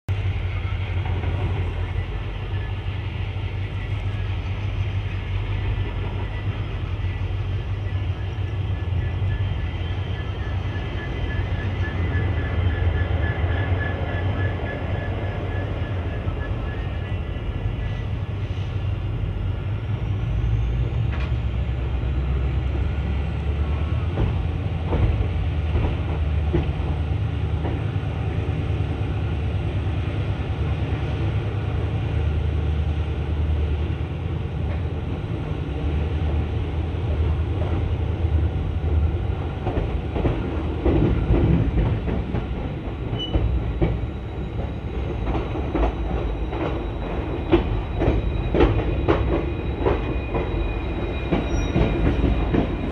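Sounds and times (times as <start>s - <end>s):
train wheels rumbling on track: 0.1s - 52.9s
wheels clacking over rail joints: 39.6s - 52.9s.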